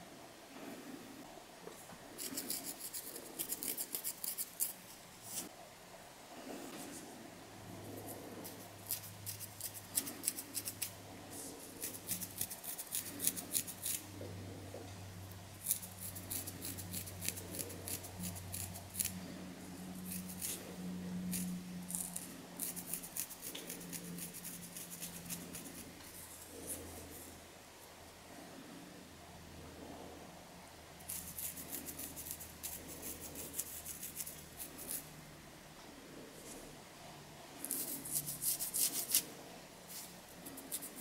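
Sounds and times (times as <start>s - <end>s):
faint low hum: 0.0s - 41.0s
fingernails scratching scalp: 2.2s - 5.5s, 8.0s - 14.1s, 15.6s - 19.2s, 20.0s - 27.3s, 31.1s - 35.1s, 37.6s - 39.3s, 39.9s - 41.0s.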